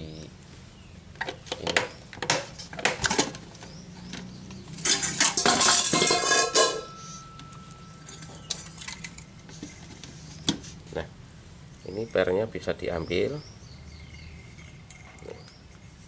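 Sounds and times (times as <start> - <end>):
metal clinking and clattering: 4.8 - 9.3
ringing metal rattle: 4.8 - 9.3.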